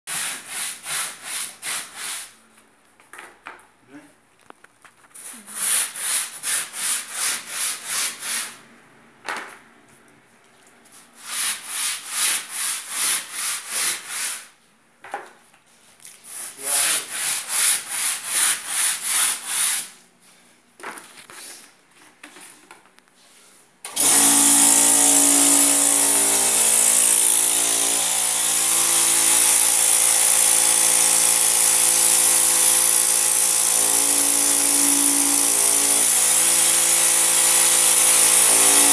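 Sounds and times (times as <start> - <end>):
electric motor running: 23.9 - 38.9.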